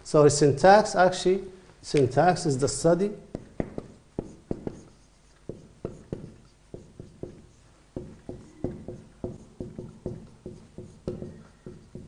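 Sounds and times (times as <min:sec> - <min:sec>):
marker writing on whiteboard: 0:03.3 - 0:12.0.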